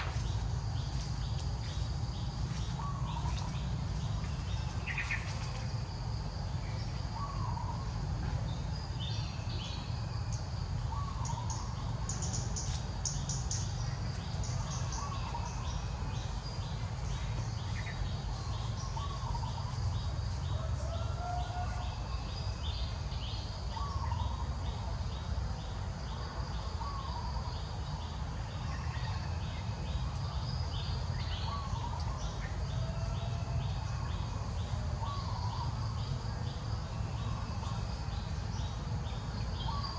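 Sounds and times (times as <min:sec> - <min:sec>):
steady low rumble: 0:00.0 - 0:20.8
birds chirping: 0:00.0 - 0:25.8, 0:26.8 - 0:39.9
insect chirping: 0:00.0 - 0:39.9.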